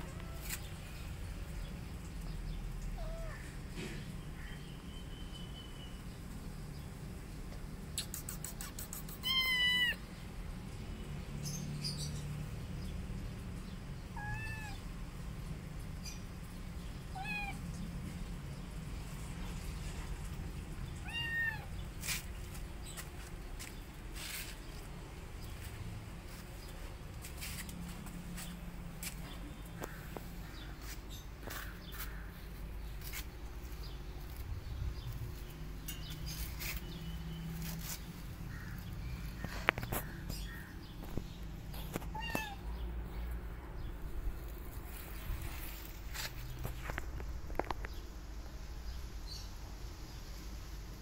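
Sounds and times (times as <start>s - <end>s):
kitten meowing: 9.1s - 10.0s, 14.2s - 14.8s, 17.1s - 17.6s, 21.0s - 21.7s, 42.0s - 42.6s
low steady hum: 15.0s - 51.0s.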